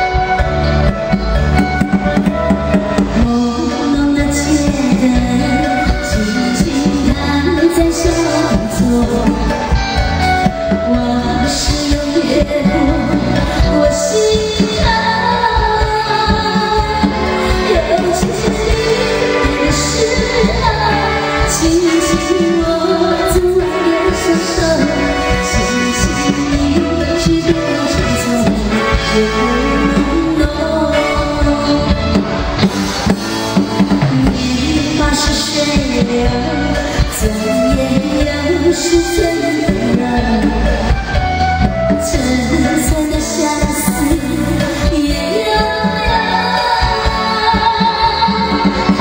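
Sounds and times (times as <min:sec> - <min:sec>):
drums: 0:00.0 - 0:49.0
electric guitar: 0:00.0 - 0:49.0
live band playing pop song: 0:00.0 - 0:49.0
singing voice: 0:03.0 - 0:32.5, 0:34.0 - 0:41.1, 0:41.9 - 0:49.0.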